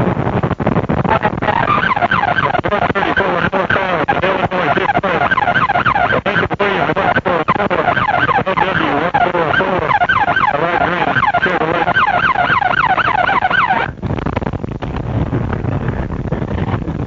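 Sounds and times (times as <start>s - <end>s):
police siren yelping: 1.4s - 14.0s.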